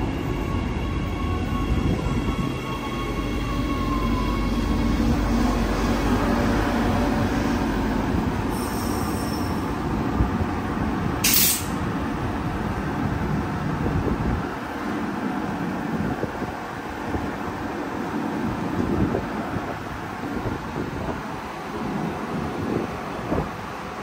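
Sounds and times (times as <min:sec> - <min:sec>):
train rumbling past: 0:00.0 - 0:24.0
sharp hiss: 0:11.2 - 0:11.8.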